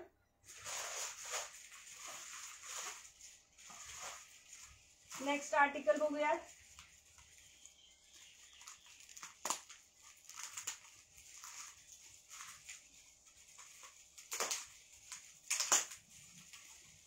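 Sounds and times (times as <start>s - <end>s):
plastic crackles: 0.4s - 17.0s
plastic packaging rustling: 0.4s - 17.0s.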